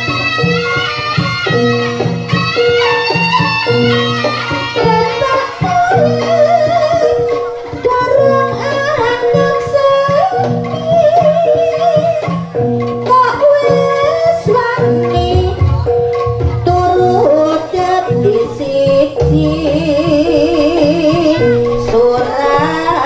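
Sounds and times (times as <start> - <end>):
gamelan melody: 0.0 - 23.0
drum and gong pulse: 14.6 - 23.0.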